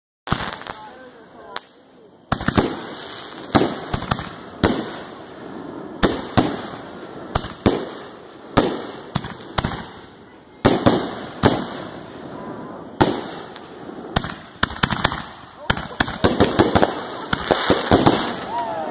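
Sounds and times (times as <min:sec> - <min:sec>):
fireworks bursting: 0:00.2 - 0:18.9
fireworks rumble: 0:00.3 - 0:18.9.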